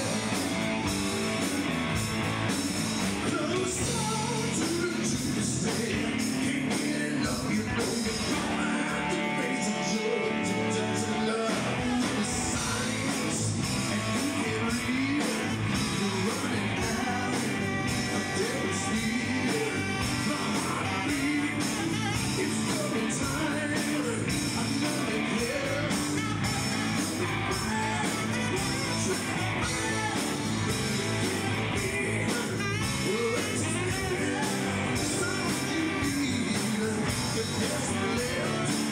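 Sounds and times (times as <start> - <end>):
live rock band playing: 0.0 - 38.9
tenor saxophone lead: 12.6 - 38.9.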